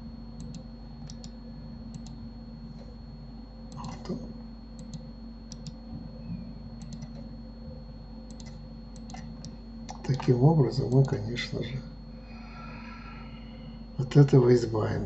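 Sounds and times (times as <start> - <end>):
steady low hum: 0.0 - 15.0
computer mouse clicking: 0.4 - 2.2, 3.7 - 4.2, 4.8 - 5.8, 6.8 - 7.3, 8.3 - 11.2.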